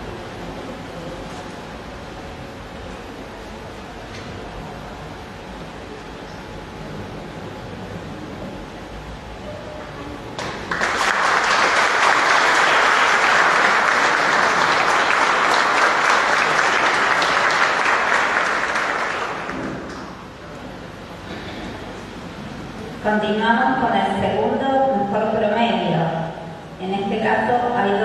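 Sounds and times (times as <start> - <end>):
small audience applauding: 10.4 - 20.3.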